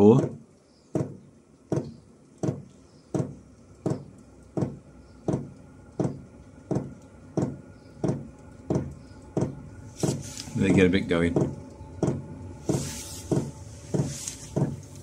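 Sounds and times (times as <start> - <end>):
fuel pump ticking: 0.0 - 15.0
heater humming: 0.0 - 15.0.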